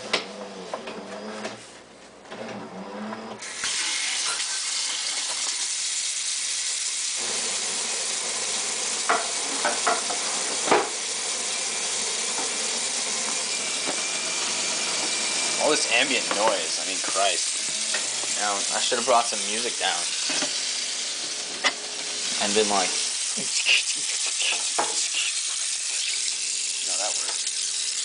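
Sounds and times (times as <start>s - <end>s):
water running into sink: 3.4s - 28.0s.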